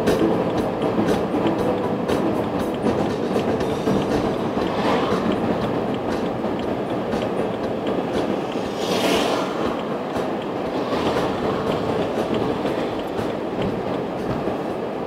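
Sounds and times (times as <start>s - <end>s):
road and tyre rumble in car: 0.0s - 15.0s
brief hiss: 8.2s - 11.6s.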